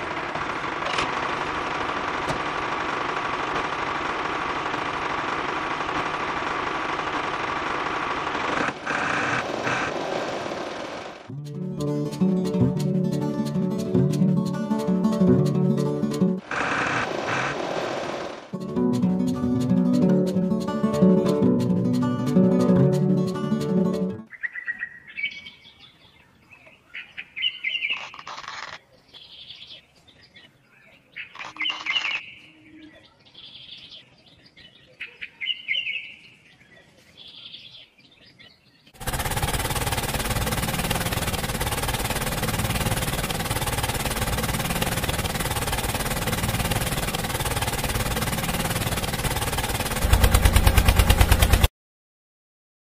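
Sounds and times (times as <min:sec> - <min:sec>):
birds chirping: 0:24.3 - 0:39.0
toy tractor mechanical rattle: 0:39.0 - 0:51.7.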